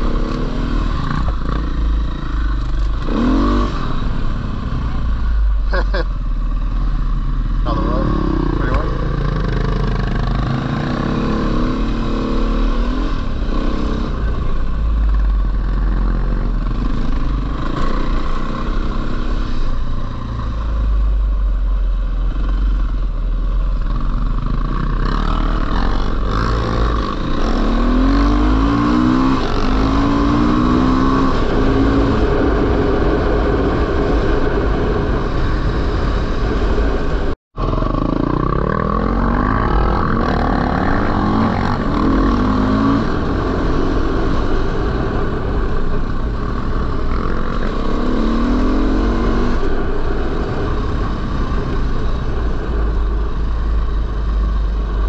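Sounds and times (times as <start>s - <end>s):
dirt bike engine revving: 0.0s - 4.2s, 7.5s - 14.3s, 24.3s - 32.8s, 37.6s - 44.8s, 46.5s - 52.2s.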